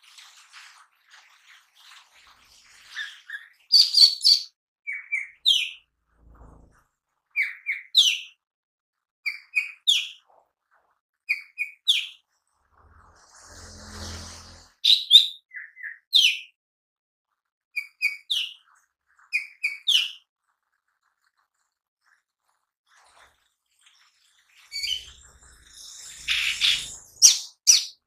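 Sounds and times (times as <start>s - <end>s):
bird chips and whistle: 2.8s - 5.8s, 14.8s - 16.4s, 17.8s - 18.6s, 19.3s - 20.2s, 24.5s - 28.0s.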